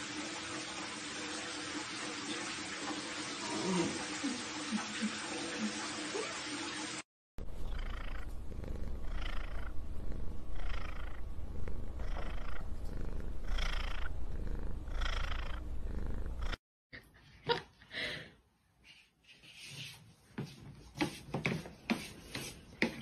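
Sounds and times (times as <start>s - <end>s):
cat purring: 7.4s - 16.6s
faint knocks and rubs: 19.2s - 23.0s.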